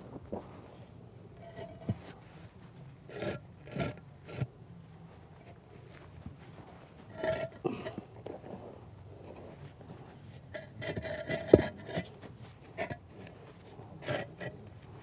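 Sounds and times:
concrete blocks knocking and scraping: 0:01.4 - 0:02.2, 0:07.0 - 0:08.6, 0:10.3 - 0:15.0.

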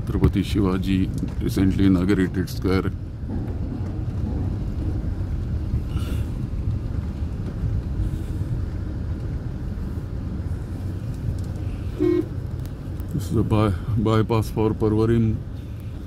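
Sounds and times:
car driving slowly: 0:00.0 - 0:16.0.

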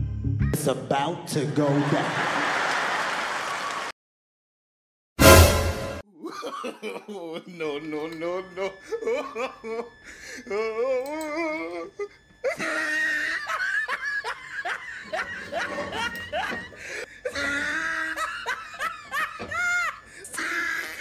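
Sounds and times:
woman laughing hard: 0:06.1 - 0:07.6, 0:08.6 - 0:10.7, 0:11.3 - 0:21.0
woman squealing: 0:19.5 - 0:21.0.

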